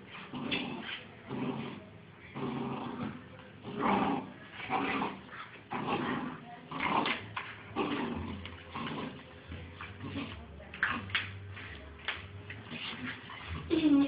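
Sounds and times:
puppies growling and yipping: 3.6 - 9.2.

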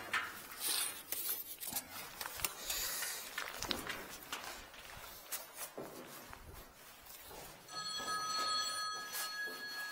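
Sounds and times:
footsteps on concrete: 3.2 - 9.9.

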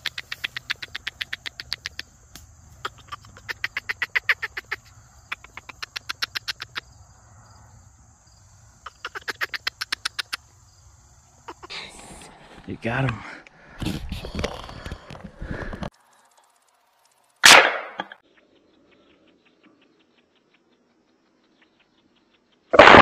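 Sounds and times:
squirrel chattering: 0.0 - 6.9, 8.8 - 10.8, 11.4 - 11.8.

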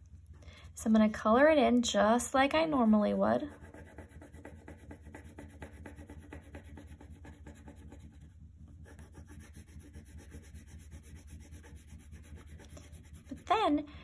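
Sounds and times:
crayon scribbling on paper: 3.4 - 13.8.

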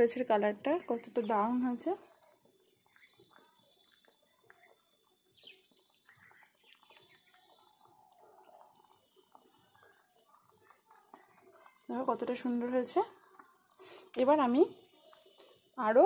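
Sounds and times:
curry bubbling in a pan: 0.0 - 16.0.

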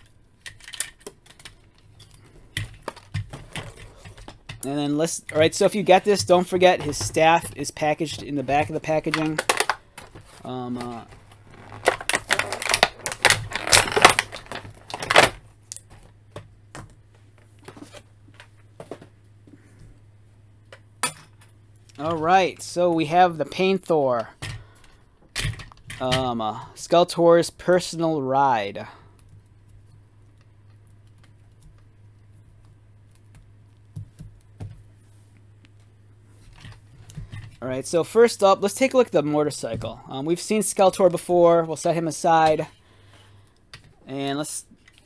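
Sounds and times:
hands handling plastic toys: 0.0 - 16.1
low steady hum: 0.0 - 45.0
plastic packaging crinkling: 8.9 - 15.9.

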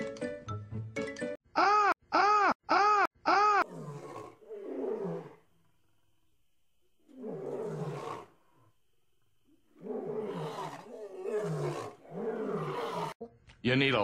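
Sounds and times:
roaring falling in pitch: 3.3 - 5.4, 7.1 - 8.3, 9.8 - 13.2.

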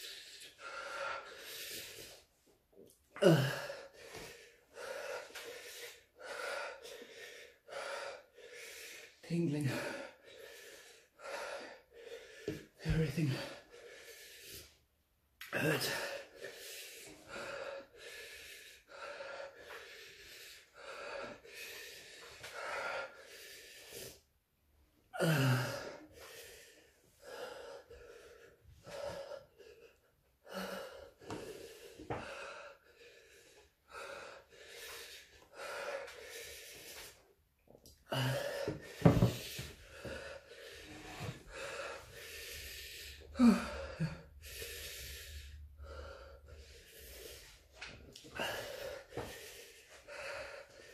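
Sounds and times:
man breathing hard: 0.0 - 2.3, 3.1 - 14.9, 15.5 - 24.4, 25.1 - 37.3, 37.9 - 50.9
man groaning: 3.2 - 3.7.

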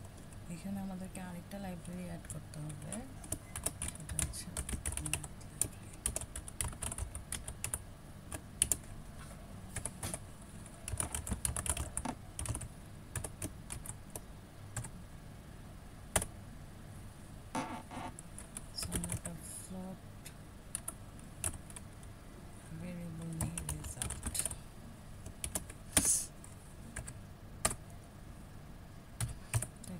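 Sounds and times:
computer keyboard typing: 0.1 - 8.9, 9.7 - 14.9, 16.1 - 16.3, 17.6 - 19.4, 20.7 - 21.9, 22.7 - 24.6, 25.2 - 26.2, 26.9 - 27.8, 29.2 - 29.9.

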